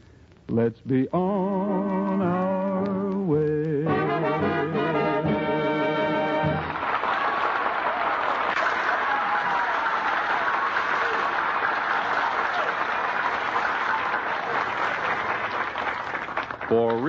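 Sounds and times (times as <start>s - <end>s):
studio audience applauding: 4.4s - 17.0s.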